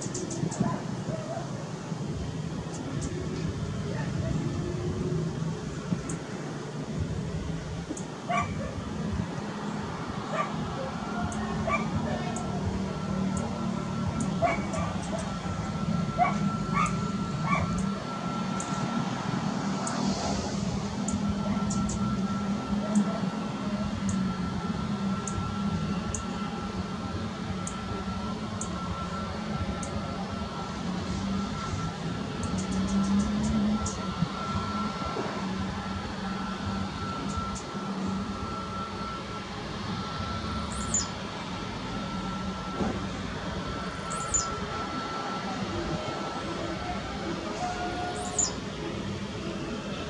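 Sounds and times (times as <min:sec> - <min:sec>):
jet engines idling: 0:00.0 - 0:50.0
bird chirping: 0:40.6 - 0:41.2, 0:44.0 - 0:44.6, 0:48.1 - 0:48.6.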